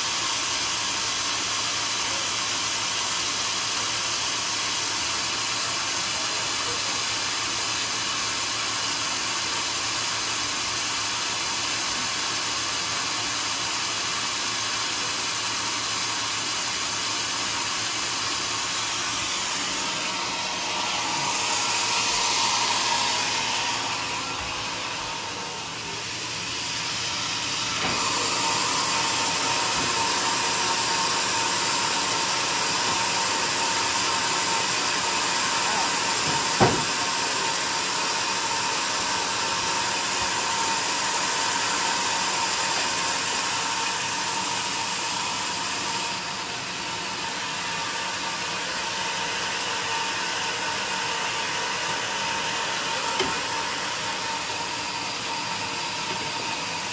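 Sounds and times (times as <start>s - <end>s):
band sawmill running: 0.0s - 56.9s.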